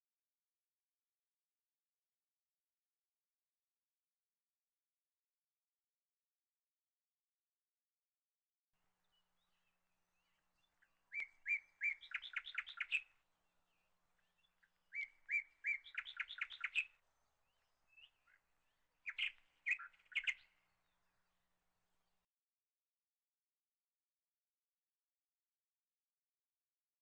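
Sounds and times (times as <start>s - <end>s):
small songbird singing: 9.0s - 21.4s.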